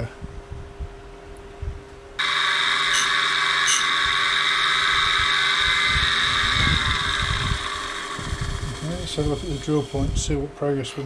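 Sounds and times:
grinder motor whining: 2.2s - 10.4s.

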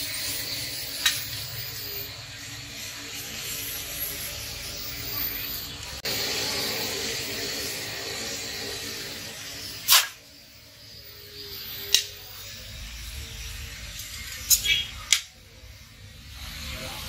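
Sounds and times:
forge fire hissing: 0.0s - 17.0s.

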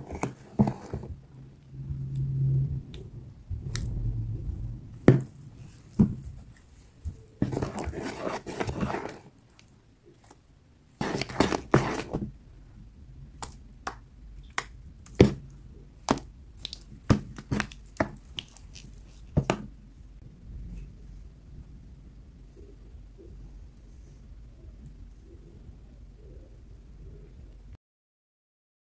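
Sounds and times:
crumbly material crunching: 3.0s - 10.4s, 11.0s - 12.4s, 13.3s - 19.8s.

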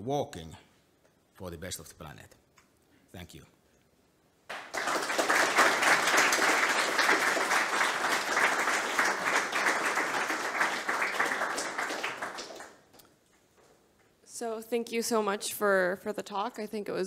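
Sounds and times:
audience applauding: 4.5s - 13.0s.

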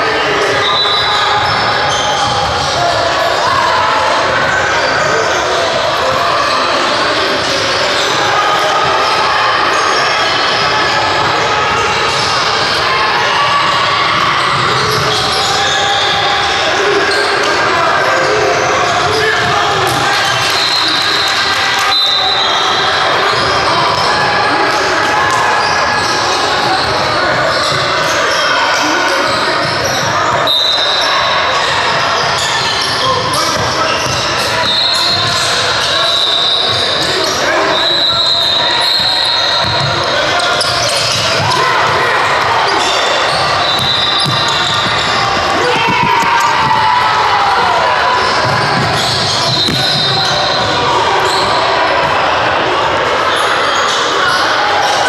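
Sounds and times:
many overlapping voices: 0.0s - 55.0s
basketballs bouncing on wooden floor: 39.6s - 40.1s, 43.4s - 47.1s, 48.3s - 50.7s.

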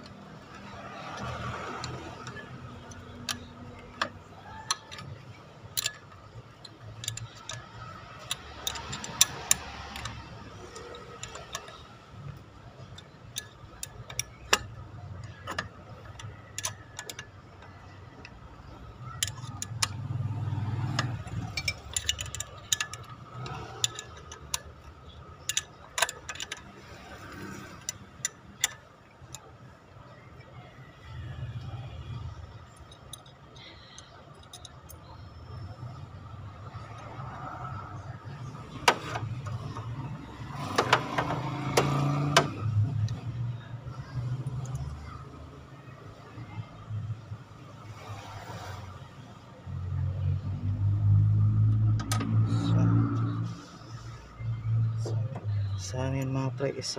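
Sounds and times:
wrench clicking on nuts: 0.0s - 29.7s, 31.1s - 45.2s.

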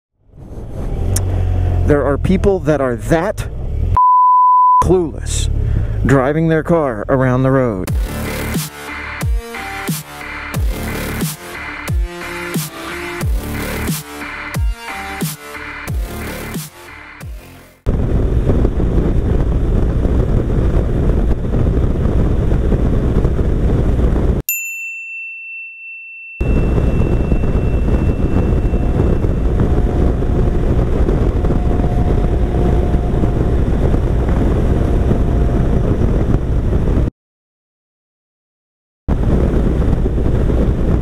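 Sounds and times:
motorcycle riding wind and engine: 0.3s - 4.0s, 4.9s - 8.5s, 17.3s - 24.4s, 26.4s - 37.1s, 39.1s - 41.0s
bright ding: 24.5s - 30.3s.

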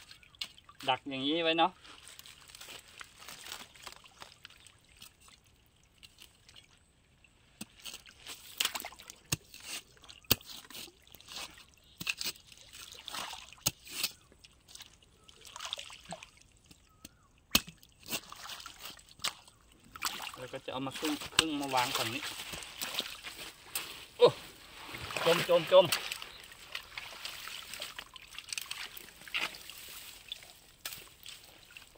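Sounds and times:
muddy water sloshing and splashing: 0.0s - 31.9s
dry grass and reeds rustling: 1.8s - 8.7s, 18.0s - 31.9s.

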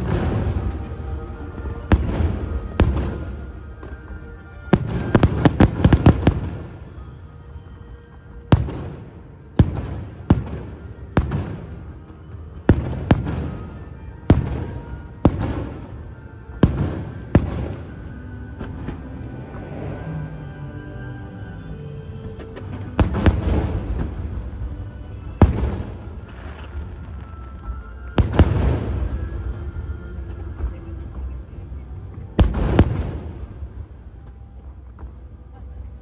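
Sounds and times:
firework bangs with echo: 0.0s - 1.0s, 1.8s - 4.0s, 4.6s - 6.8s, 12.6s - 18.0s, 22.9s - 24.6s, 25.4s - 29.5s, 32.4s - 33.6s
music playing: 0.0s - 36.0s.

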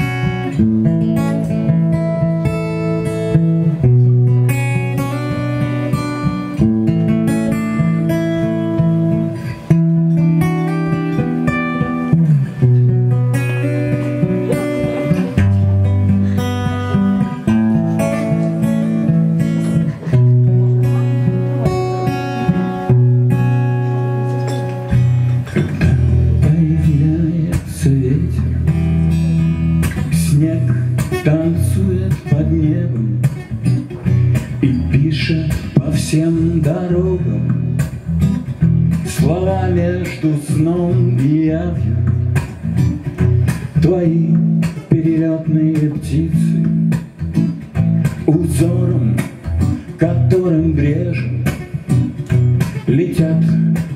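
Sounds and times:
fingerstyle acoustic guitar: 0.0s - 53.9s
man singing: 13.3s - 23.0s, 25.6s - 29.0s, 29.9s - 37.9s, 38.9s - 42.4s, 43.6s - 47.1s, 48.0s - 52.0s, 52.6s - 53.9s.

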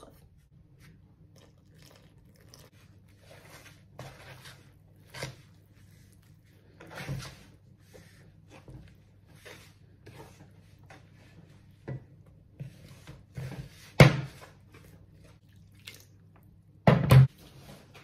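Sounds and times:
hands rubbing flour in a bowl: 2.7s - 11.8s, 12.4s - 15.4s.

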